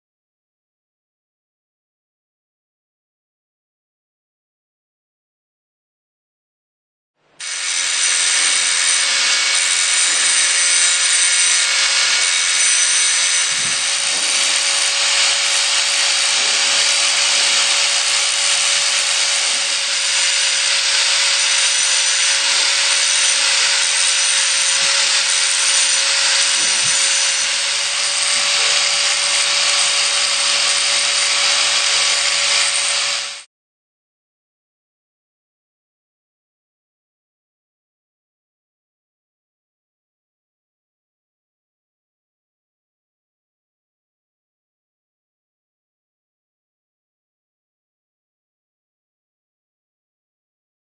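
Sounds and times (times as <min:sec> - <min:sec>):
angle grinder motor whine: 0:07.4 - 0:33.5
grinding disc on metal wrench: 0:07.4 - 0:33.5.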